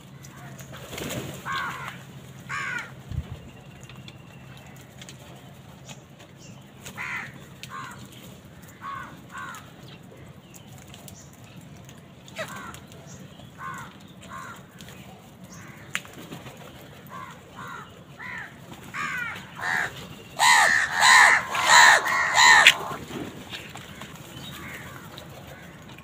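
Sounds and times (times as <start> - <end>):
crows cawing: 1.4 - 2.9, 7.0 - 8.0, 8.6 - 9.7, 13.6 - 14.6, 17.1 - 23.1, 24.0 - 25.8.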